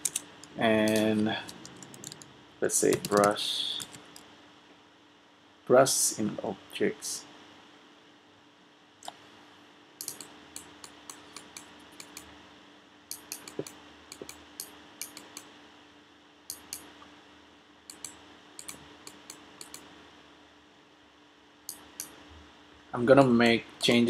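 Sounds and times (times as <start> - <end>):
keyboard and mouse clicks: 0.0 - 2.3, 2.9 - 4.2, 10.0 - 12.3, 13.1 - 15.5, 16.5 - 16.9, 17.9 - 19.9
faint steady hum: 0.0 - 24.0.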